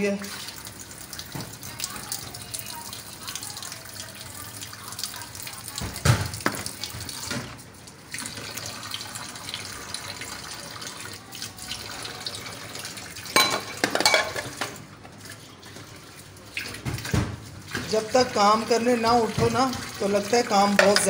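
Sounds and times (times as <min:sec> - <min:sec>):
tap water running into sink: 0:00.0 - 0:21.0
dishes knocking: 0:13.4 - 0:14.8, 0:20.8 - 0:21.0.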